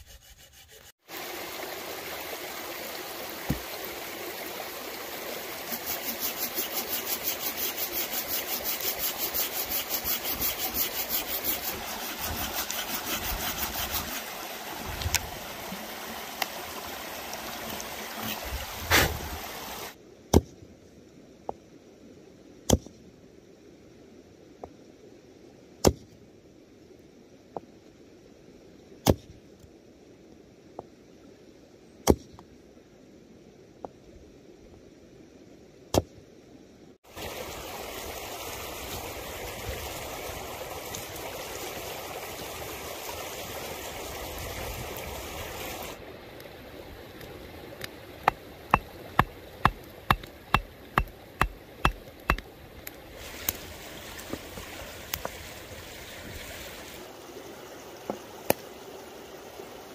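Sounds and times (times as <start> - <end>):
running brook: 0.3 - 20.0, 37.0 - 59.9
campfire crackling: 46.3 - 54.4.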